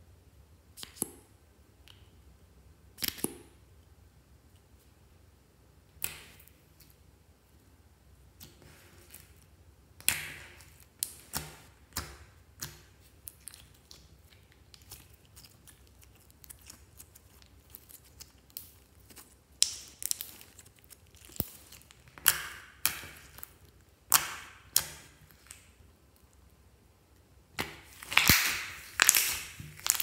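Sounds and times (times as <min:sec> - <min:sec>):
slime popping and crackling: 0:10.0 - 0:25.8, 0:27.6 - 0:30.0.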